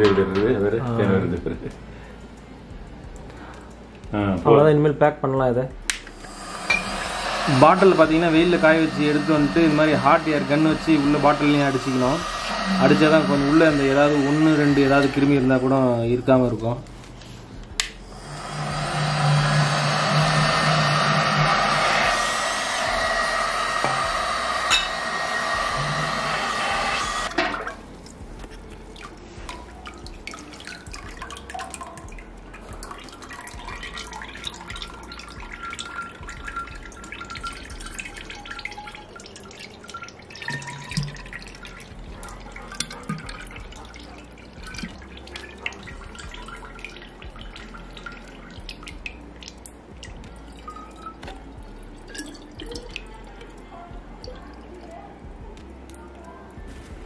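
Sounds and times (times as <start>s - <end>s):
hot air gun blowing: 6.2s - 15.3s, 18.1s - 27.4s.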